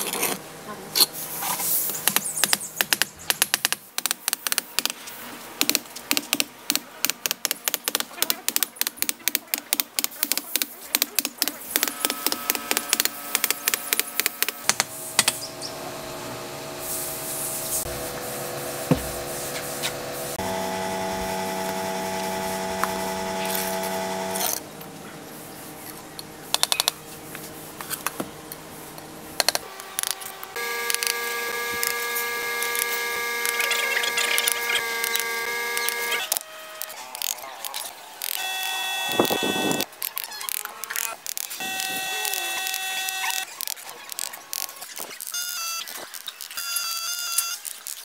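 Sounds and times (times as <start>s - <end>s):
small power tool whining: 19.9s - 24.6s, 29.6s - 37.3s, 38.2s - 39.9s, 41.5s - 43.5s.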